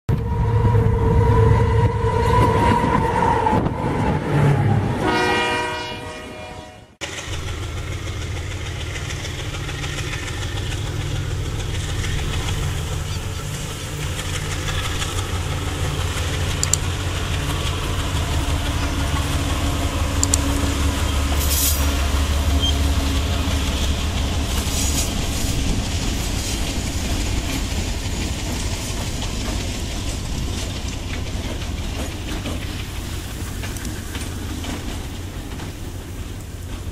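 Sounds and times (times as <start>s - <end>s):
locomotive horn: 0.1s - 7.0s
diesel locomotives rumbling past: 0.1s - 36.9s
sharp clicks: 16.5s - 16.9s, 20.2s - 20.5s.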